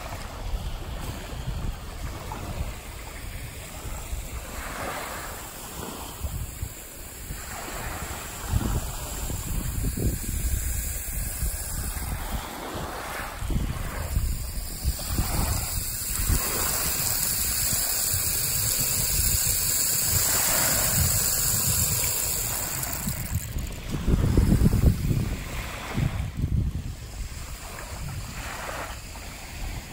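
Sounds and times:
small waves lapping: 0.0 - 29.9
wind on microphone: 0.0 - 29.9
rainstick rattling hiss: 1.6 - 29.9.

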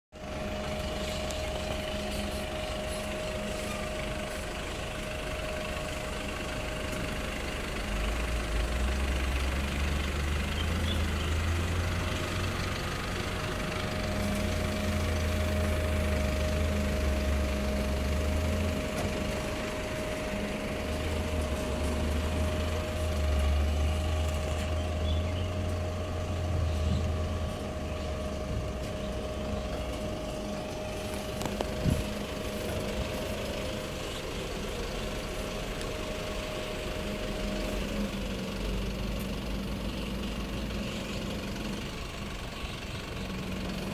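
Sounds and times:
truck diesel engine idling: 0.1 - 43.9
steady whine: 12.8 - 43.9.

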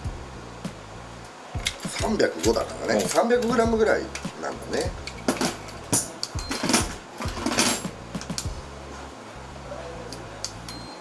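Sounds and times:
metal objects clicking and rattling: 5.0 - 8.5.

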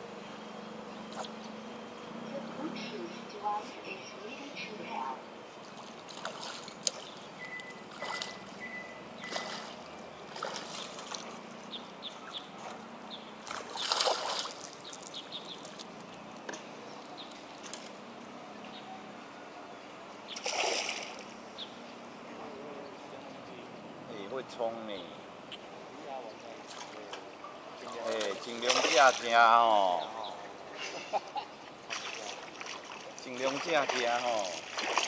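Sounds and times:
fish splashing at water surface: 7.7 - 8.5, 9.2 - 11.4, 13.4 - 15.8, 20.4 - 21.3, 28.0 - 29.4, 31.9 - 35.0.

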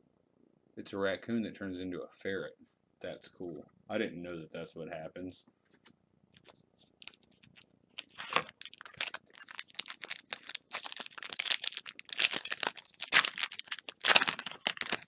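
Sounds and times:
foil wrapper tearing and crinkling: 7.0 - 15.0.

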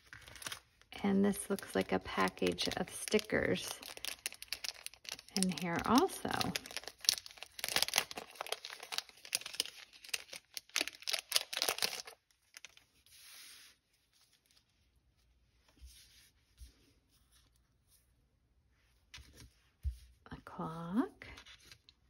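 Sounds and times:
wrapping crackling and crinkling: 0.0 - 15.8
soft rustles of stickers: 0.0 - 22.0.

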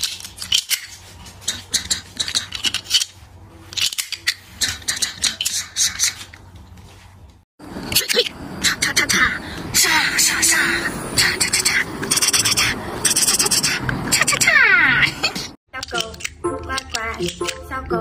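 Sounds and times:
plastic clicks and rattles: 0.0 - 3.1, 3.7 - 5.6, 15.8 - 17.6.

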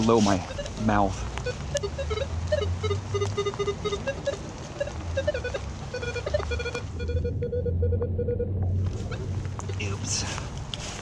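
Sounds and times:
metal detector beeps: 0.4 - 9.9.

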